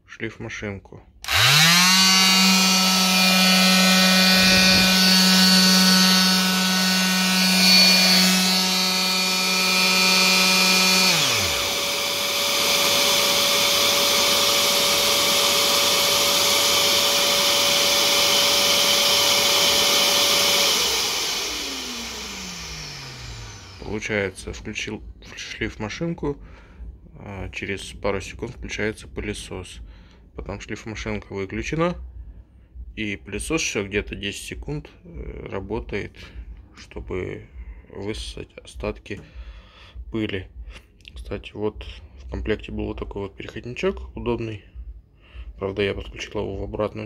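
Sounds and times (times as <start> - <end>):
detail sander motor whining: 1.2 - 24.4
vacuum cleaner rushing: 1.2 - 24.4.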